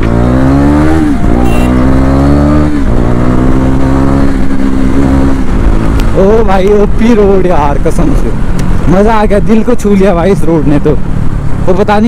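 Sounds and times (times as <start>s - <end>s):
motorcycle engine accelerating: 0.0s - 7.4s.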